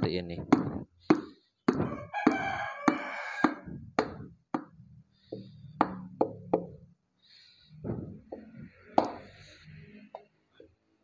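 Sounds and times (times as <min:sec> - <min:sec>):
hammer knocking on wooden block: 0:00.4 - 0:06.8, 0:07.9 - 0:09.2.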